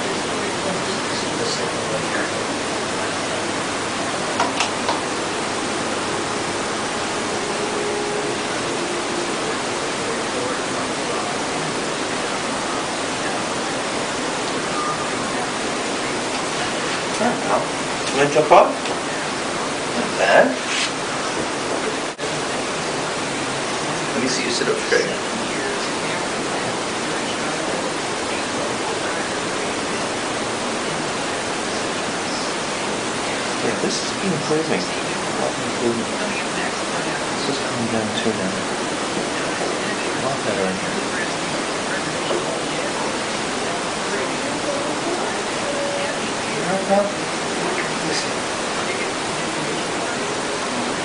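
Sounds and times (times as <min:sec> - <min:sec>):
steady background hiss: 0:00.0 - 0:51.0.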